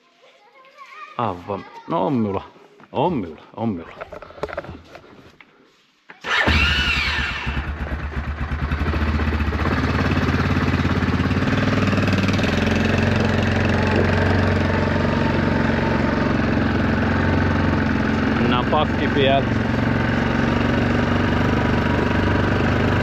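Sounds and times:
engine starting and running: 0:06.2 - 0:23.0.

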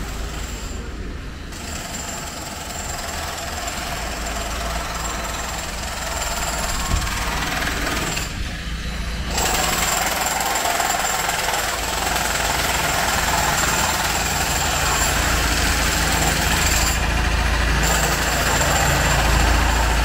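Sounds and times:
mechanical noise with high whine: 0:04.0 - 0:10.0.

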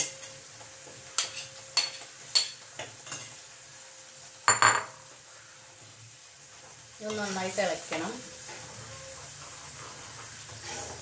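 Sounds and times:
steel spoon clinking on pan: 0:01.2 - 0:03.4.

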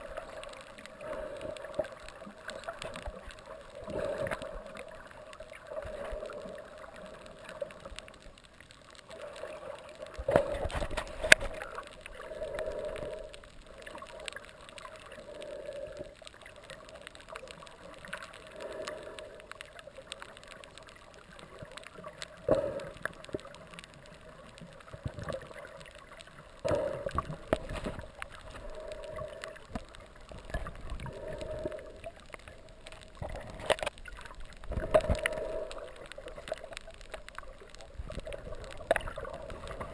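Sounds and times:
underwater water surging and gurgling: 0:00.0 - 0:39.9.

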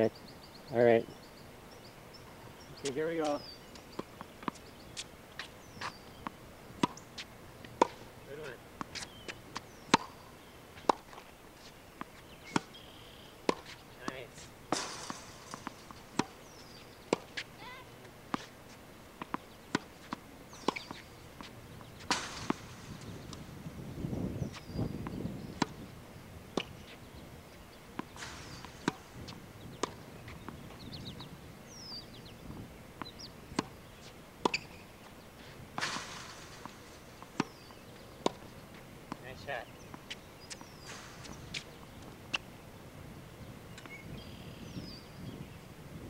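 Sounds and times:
birds chirping: 0:00.0 - 0:45.8
tennis ball hits and bounces: 0:02.8 - 0:12.8, 0:13.4 - 0:23.5, 0:27.9 - 0:32.4, 0:33.0 - 0:34.9, 0:35.7 - 0:42.5.

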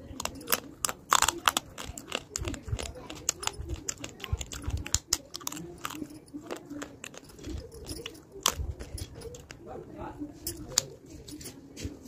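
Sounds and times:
person crunching brittle clay: 0:00.0 - 0:09.4.

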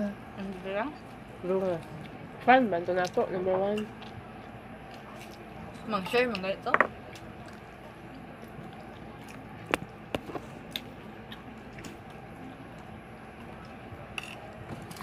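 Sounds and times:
chewing: 0:07.1 - 0:13.8.

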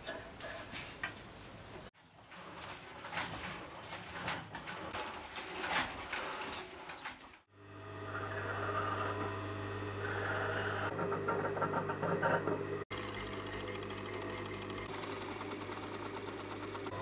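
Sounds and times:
loom clattering: 0:02.0 - 0:07.4
electric motor hum: 0:07.5 - 0:17.0
sewing machine rattle: 0:12.9 - 0:17.0.

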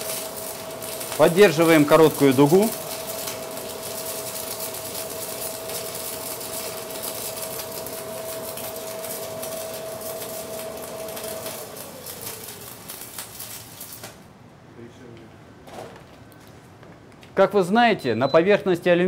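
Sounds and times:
welding arc crackling: 0:00.0 - 0:14.4.

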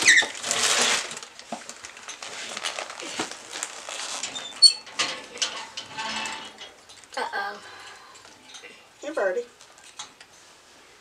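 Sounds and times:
plastic bag crinkling: 0:00.0 - 0:04.6.

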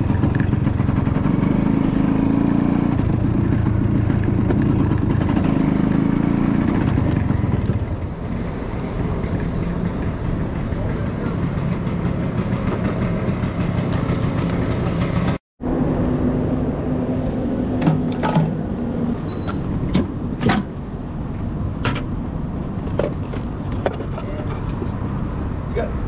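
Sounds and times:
scooter engine running: 0:00.0 - 0:15.4.

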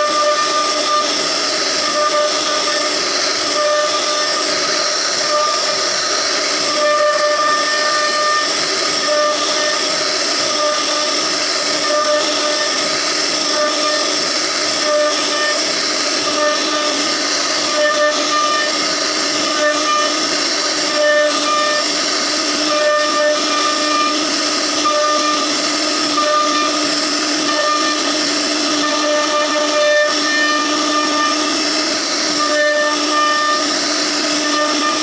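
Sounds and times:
router spindle carving wood: 0:00.0 - 0:35.0.

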